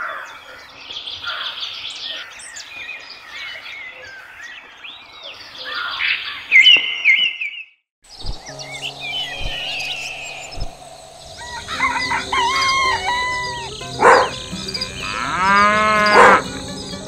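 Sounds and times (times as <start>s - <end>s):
background music: 8.2s - 17.0s
rooster crowing: 11.3s - 14.4s
cow mooing: 11.4s - 16.6s.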